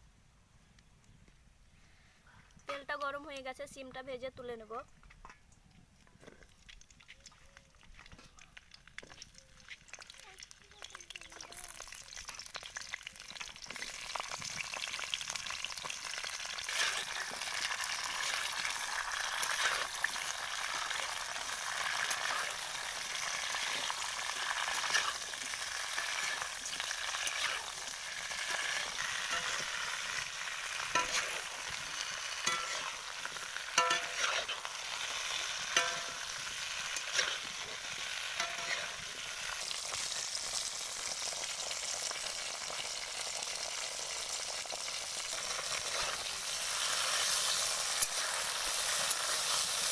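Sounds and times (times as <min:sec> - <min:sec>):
beans sizzling in oil: 0:06.4 - 0:49.9
metal spatula scraping pan: 0:16.6 - 0:20.0, 0:20.6 - 0:39.2.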